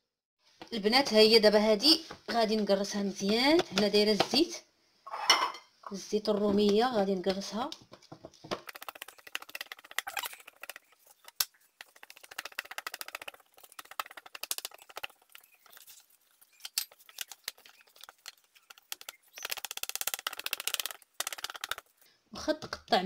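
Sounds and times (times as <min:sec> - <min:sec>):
fingers squelching oiled dough: 0:08.6 - 0:22.1.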